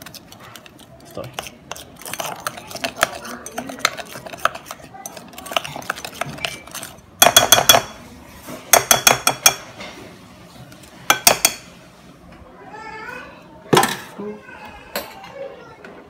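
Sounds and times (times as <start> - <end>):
spoon stirring paste in bowl: 0.0 - 9.8.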